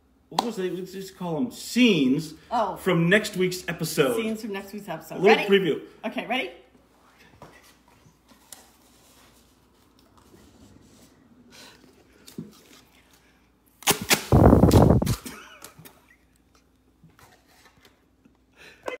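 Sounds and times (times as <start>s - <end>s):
party blowers blast: 13.8s - 15.3s.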